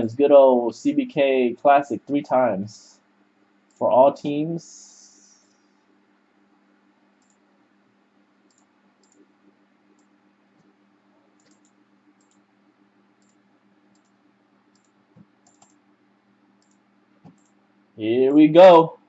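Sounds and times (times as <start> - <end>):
faint steady hum: 0.0 - 19.0
mouse and keyboard clicks: 8.5 - 9.2, 11.4 - 12.4, 13.2 - 15.8, 16.6 - 17.6.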